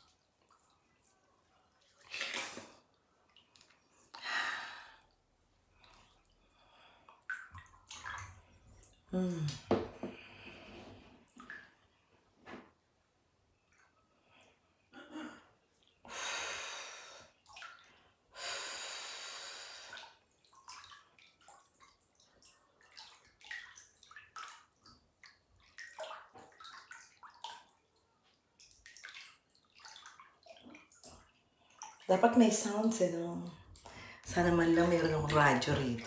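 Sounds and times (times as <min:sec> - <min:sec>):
bathwater sloshing and dripping: 0:00.0 - 0:14.9, 0:16.9 - 0:18.4, 0:19.6 - 0:36.0.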